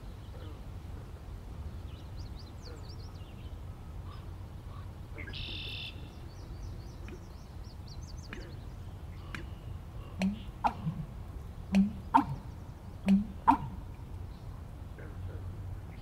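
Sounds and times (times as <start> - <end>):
small birds chirping: 1.5 - 16.0
bittern gulping clicks: 10.2 - 11.1, 11.7 - 12.4, 13.0 - 13.8.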